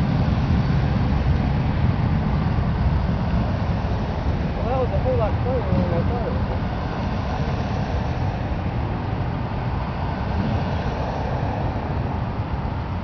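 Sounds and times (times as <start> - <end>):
car engines passing: 0.0 - 13.0.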